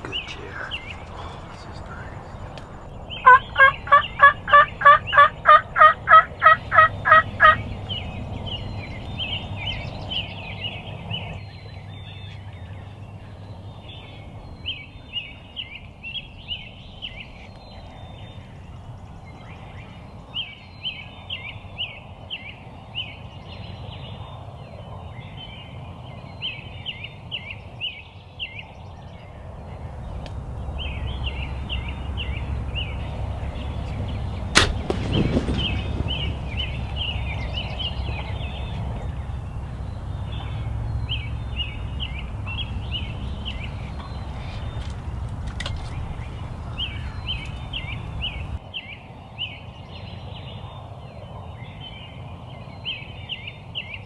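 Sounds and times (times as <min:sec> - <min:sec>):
turkey yelping: 0:03.2 - 0:07.6.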